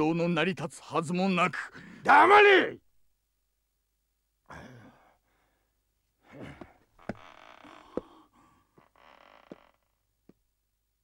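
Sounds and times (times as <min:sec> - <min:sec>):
man sighing and murmuring: 0:04.5 - 0:05.2.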